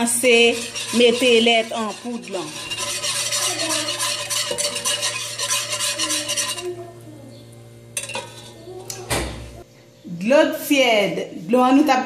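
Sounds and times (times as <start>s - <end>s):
utensil scraping metal pot: 0.0s - 7.0s, 8.0s - 9.0s.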